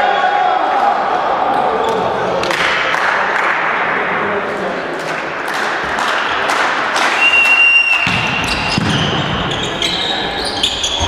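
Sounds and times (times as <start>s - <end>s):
whistle blast: 7.1s - 11.0s
shoes squeaking: 8.4s - 11.0s.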